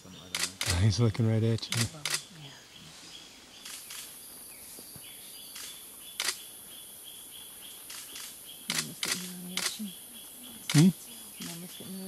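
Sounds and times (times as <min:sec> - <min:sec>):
insects hissing: 0:00.0 - 0:12.0
sharp clicks: 0:00.3 - 0:00.9, 0:01.6 - 0:02.3, 0:03.6 - 0:04.1, 0:05.5 - 0:06.4, 0:07.9 - 0:09.9, 0:10.6 - 0:11.6.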